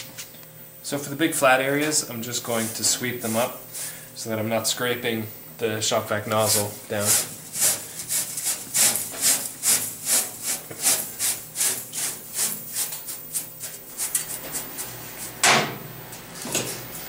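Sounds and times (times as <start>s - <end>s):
brush sweeping metal chips: 1.6s - 4.0s, 6.3s - 15.4s.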